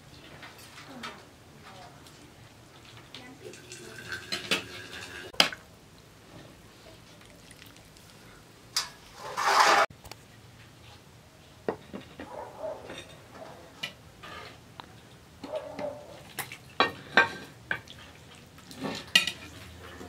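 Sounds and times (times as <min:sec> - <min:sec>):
spoon scraping a bowl: 0:09.2 - 0:09.9.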